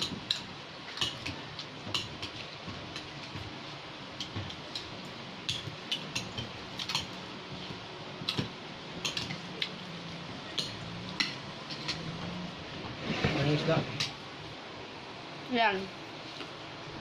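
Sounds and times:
cutlery clinking on plates: 0:10.6 - 0:12.1.

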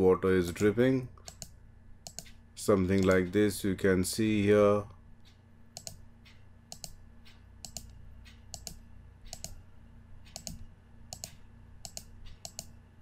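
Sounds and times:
computer mouse button clicking: 0:01.3 - 0:02.3, 0:05.8 - 0:06.0, 0:10.3 - 0:12.7.

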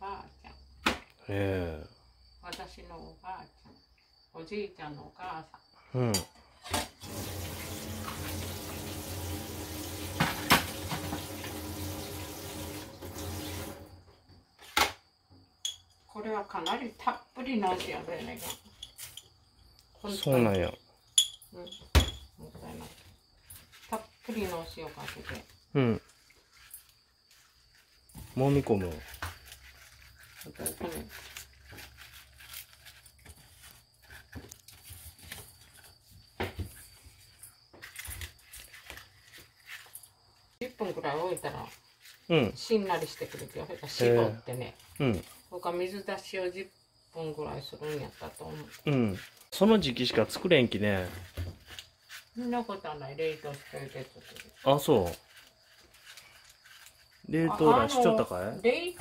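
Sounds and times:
tap water running into sink: 0:07.0 - 0:14.0
hands rubbing salt into stalks: 0:22.8 - 0:45.5, 0:47.6 - 0:58.4.

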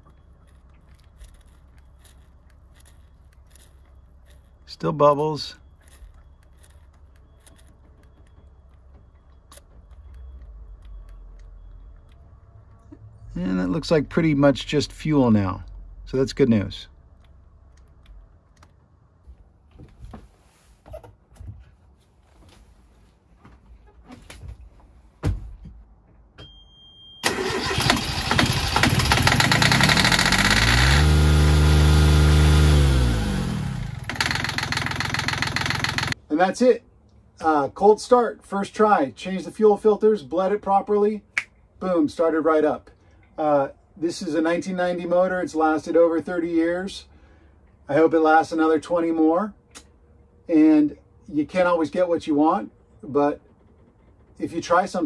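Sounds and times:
diesel engine running: 0:00.0 - 0:18.6, 0:27.2 - 0:36.2
starter motor cranking: 0:27.2 - 0:36.2.

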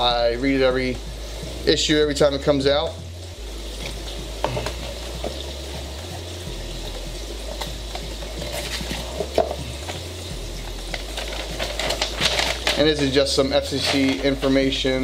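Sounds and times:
steady background hiss: 0:00.0 - 0:15.0
cardboard and paper rustling: 0:08.4 - 0:10.0, 0:10.9 - 0:14.7.

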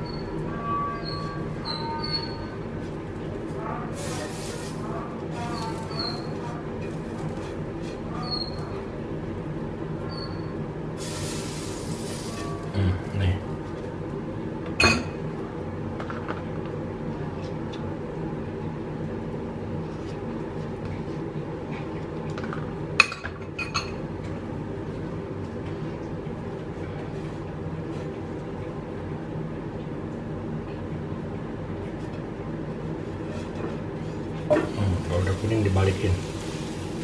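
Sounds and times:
steady low hum: 0:00.0 - 0:23.2
bread frying in a pan: 0:04.0 - 0:04.8, 0:11.0 - 0:12.7, 0:34.6 - 0:37.0.

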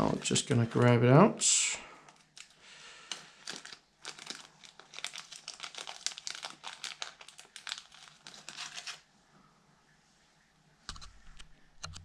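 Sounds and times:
plastic bag crinkling: 0:02.1 - 0:09.1.

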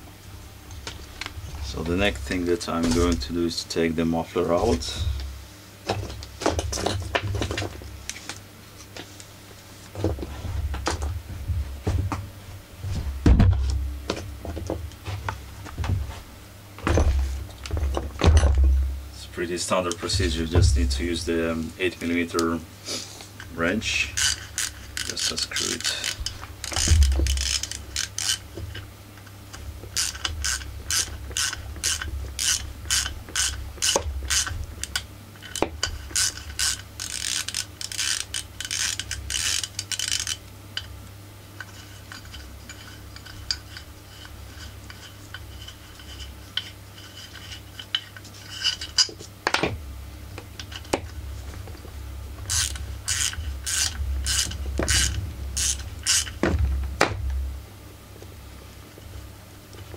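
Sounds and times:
ratcheting wrench clicking: 0:24.1 - 0:28.4, 0:30.0 - 0:40.9, 0:52.5 - 0:56.4.

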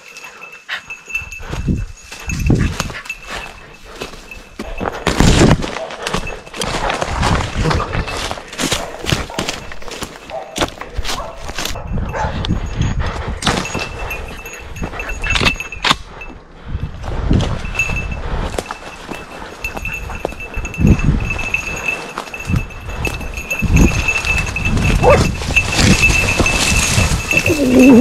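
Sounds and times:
footsteps crunching on dry leaves: 0:02.2 - 0:11.8.

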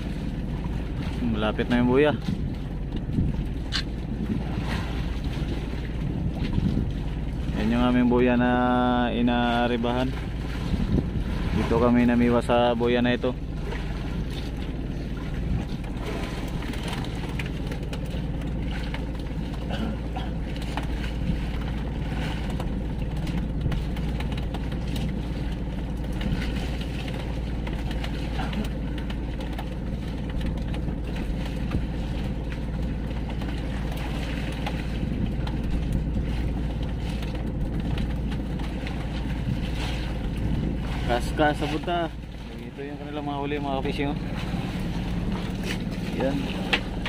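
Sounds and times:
boat engine running: 0:00.0 - 0:47.0
water noise: 0:00.0 - 0:47.0
wind rumbling on microphone: 0:00.0 - 0:47.0.

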